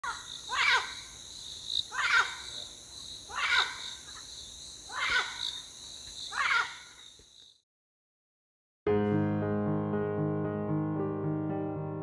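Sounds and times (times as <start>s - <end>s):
insects buzzing: 0.0s - 7.6s.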